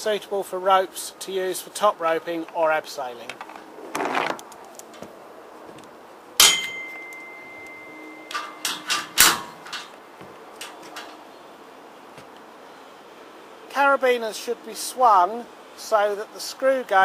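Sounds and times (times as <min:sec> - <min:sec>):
ringing metal clang: 0:06.4 - 0:09.9
metal hardware clicks and knocks: 0:06.4 - 0:11.2.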